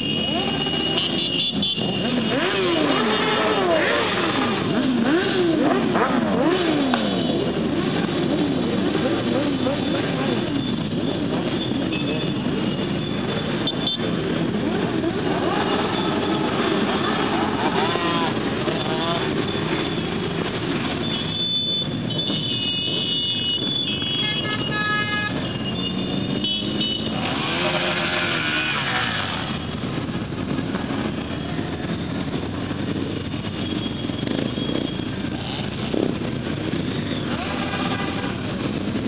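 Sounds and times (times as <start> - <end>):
horns tooting: 0.0 - 29.8, 32.9 - 39.0.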